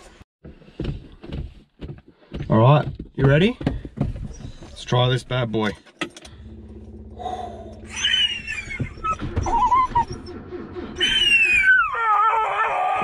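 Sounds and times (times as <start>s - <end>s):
dog whining: 7.2s - 13.0s.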